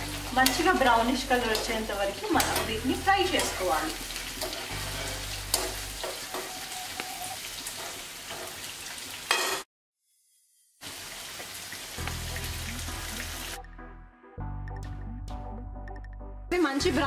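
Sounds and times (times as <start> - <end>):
vegetables sizzling in hot oil: 0.0 - 13.6
spatula scraping a pan: 3.4 - 8.7.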